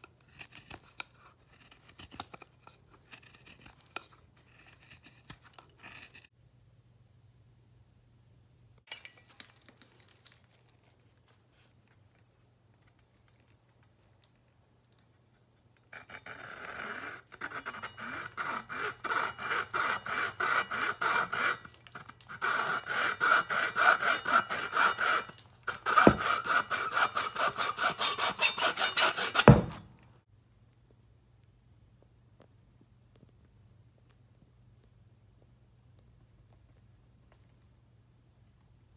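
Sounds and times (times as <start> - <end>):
hacksaw cutting wood: 16.0 - 29.9
sharp knock: 29.4 - 29.8.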